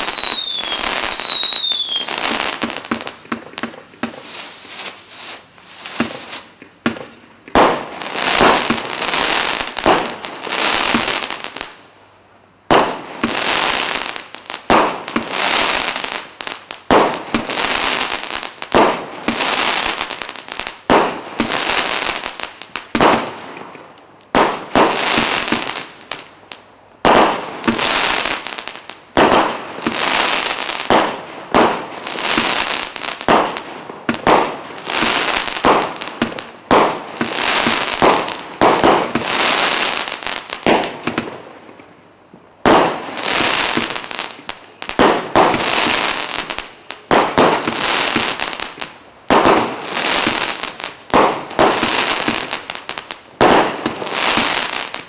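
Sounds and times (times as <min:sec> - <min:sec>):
firework cake bangs: 0:05.8 - 0:08.9, 0:16.8 - 0:17.6, 0:33.2 - 0:39.4, 0:44.9 - 0:46.1, 0:49.3 - 0:52.6.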